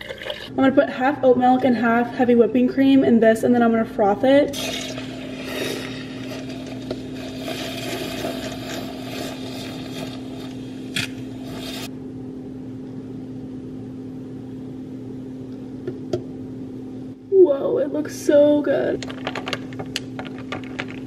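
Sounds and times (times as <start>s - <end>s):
steady hum: 0.0s - 21.0s
electric milk frother whirring: 4.5s - 11.9s.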